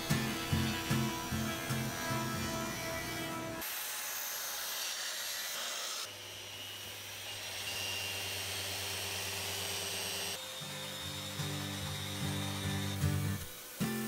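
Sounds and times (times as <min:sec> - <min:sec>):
orbital sander on wood: 0:00.0 - 0:14.0
dust extractor hissing whir: 0:06.1 - 0:14.0.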